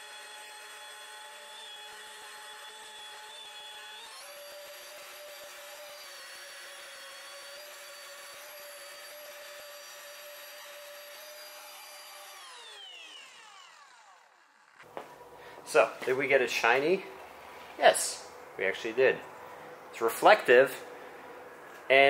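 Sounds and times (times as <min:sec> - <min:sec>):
rotary polisher motor whine: 0:00.0 - 0:15.4.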